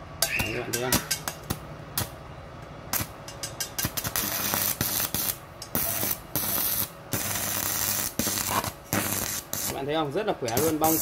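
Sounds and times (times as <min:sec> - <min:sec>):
welding arc crackling: 0:02.9 - 0:11.0.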